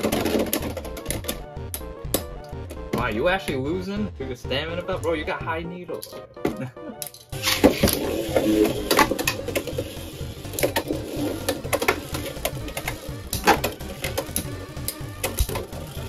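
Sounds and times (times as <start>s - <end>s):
spinning tops clacking: 7.3s - 16.0s
spinning tops whirring: 7.4s - 16.0s.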